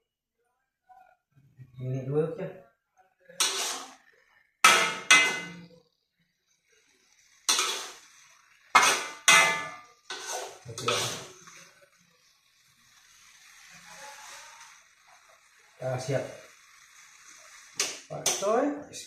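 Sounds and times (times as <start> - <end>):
metal spatula scraping a wok: 3.3 - 5.7, 6.9 - 18.6.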